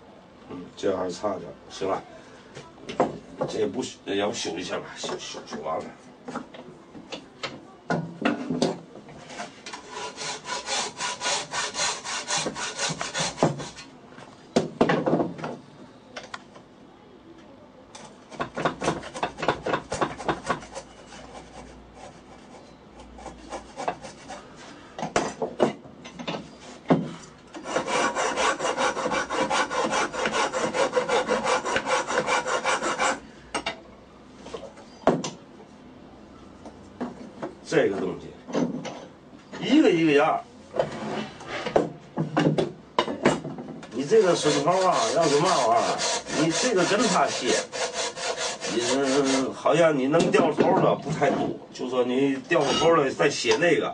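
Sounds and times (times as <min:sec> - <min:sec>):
file rasping on wood: 0:09.7 - 0:13.9, 0:18.5 - 0:24.4, 0:27.6 - 0:33.2, 0:44.0 - 0:49.5.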